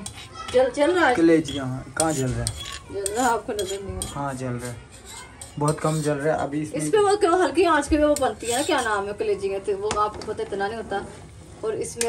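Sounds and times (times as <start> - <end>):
pots clinking and scraping on stove: 0.0 - 6.5, 7.9 - 9.1.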